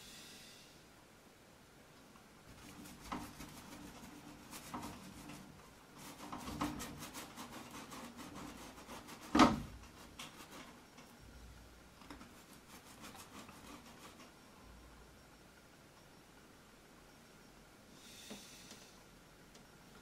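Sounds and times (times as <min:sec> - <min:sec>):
paintbrush scraping on canvas: 0:02.5 - 0:10.8, 0:12.2 - 0:14.4.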